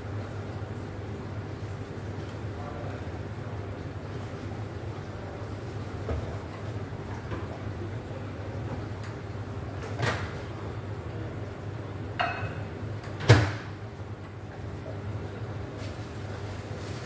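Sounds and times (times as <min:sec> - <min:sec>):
glass clink: 0:12.2 - 0:12.6.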